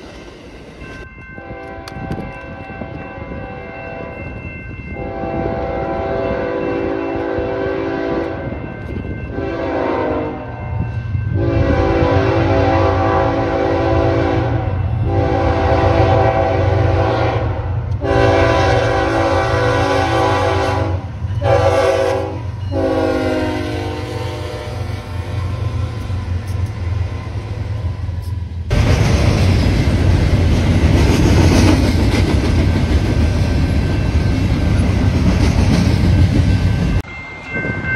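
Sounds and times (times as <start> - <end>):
locomotive air horn blasts: 5.0 - 8.5, 9.3 - 10.6, 11.4 - 25.4.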